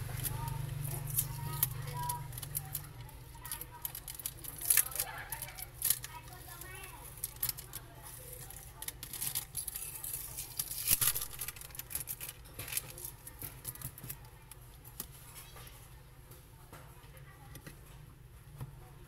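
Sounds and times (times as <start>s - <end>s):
adhesive film crackling as peeled: 0.0s - 15.2s.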